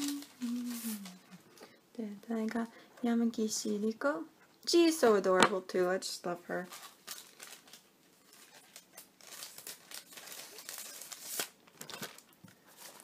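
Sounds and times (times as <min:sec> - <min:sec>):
plastic sleeve crinkling: 0:00.0 - 0:01.4, 0:06.6 - 0:13.0.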